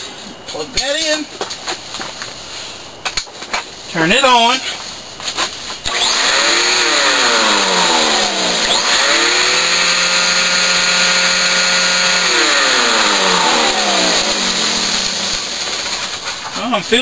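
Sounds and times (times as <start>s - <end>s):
vacuum cleaner running: 5.9s - 16.4s.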